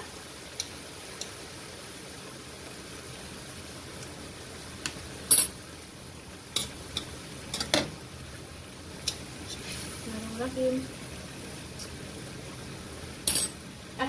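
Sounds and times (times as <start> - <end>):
stir-fry sizzling in a pan: 0.0 - 14.0
metal utensil clinking on pan: 13.3 - 13.6.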